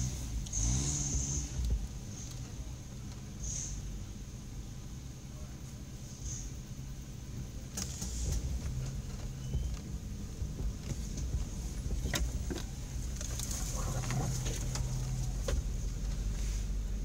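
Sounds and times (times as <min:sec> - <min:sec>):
engine running at low speed: 0:00.0 - 0:17.0.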